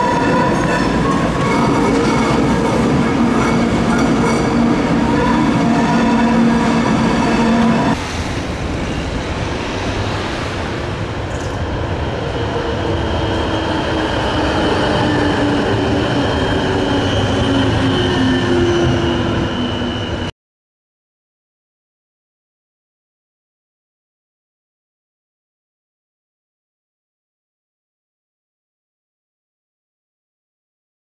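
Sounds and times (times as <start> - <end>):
tram wheels rolling on rails: 0.0 - 20.3.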